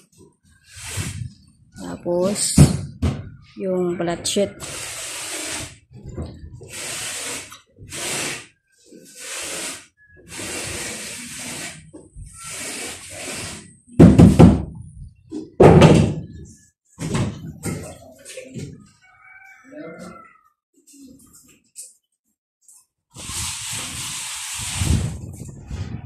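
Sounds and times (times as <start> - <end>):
trowel scraping plaster on wall: 4.6 - 5.8, 6.6 - 14.5, 23.2 - 25.6
loud heavy knocks: 15.6 - 16.3.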